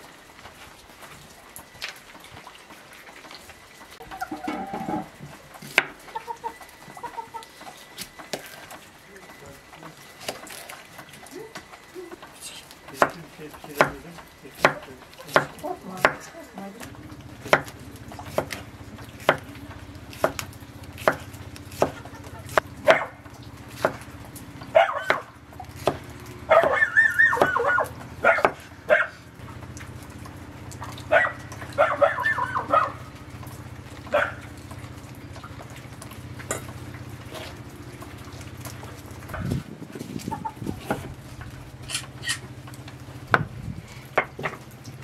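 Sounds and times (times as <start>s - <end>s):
knife chopping on wooden board: 13.0s - 16.3s, 17.4s - 19.5s, 20.1s - 23.0s, 23.7s - 24.0s, 25.1s - 27.6s, 28.4s - 28.7s
dog barking: 22.8s - 23.2s, 24.7s - 25.3s, 26.5s - 29.2s, 31.1s - 33.0s, 34.1s - 34.5s.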